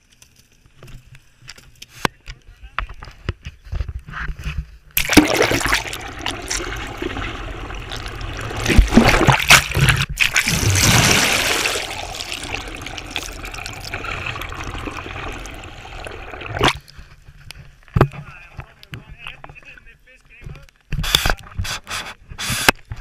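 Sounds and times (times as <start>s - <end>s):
surging splashes: 5.0s - 16.9s
underwater water rushing and bubbling: 5.0s - 17.2s.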